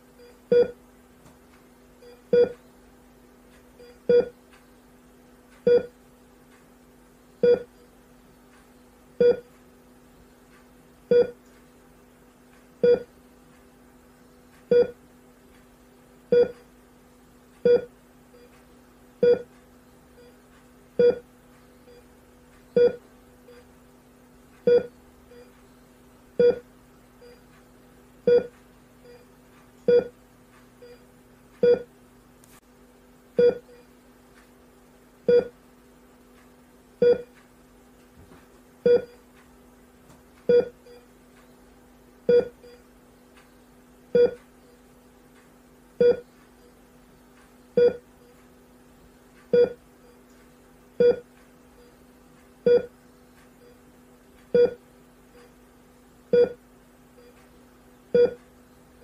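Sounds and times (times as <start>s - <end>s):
steady low hum: 0.0s - 59.0s
heart monitor beeping: 0.2s - 0.8s, 2.0s - 2.7s, 3.6s - 4.8s, 5.6s - 6.0s, 7.4s - 8.0s, 8.6s - 9.6s, 10.2s - 11.4s, 12.7s - 13.2s, 14.0s - 15.0s, 16.3s - 16.8s, 17.6s - 23.8s, 24.4s - 31.9s, 33.4s - 34.0s, 35.3s - 35.6s, 37.0s - 37.4s, 38.3s - 39.3s, 40.4s - 45.1s, 46.0s - 55.6s, 56.2s - 56.6s, 57.2s - 59.0s.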